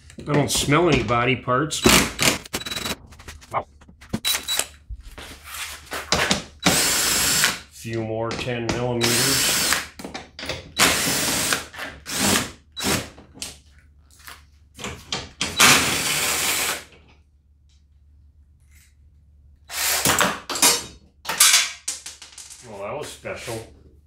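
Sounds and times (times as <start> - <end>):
cordless drill spinning: 6.6 - 7.6, 9.0 - 9.8, 10.8 - 13.0.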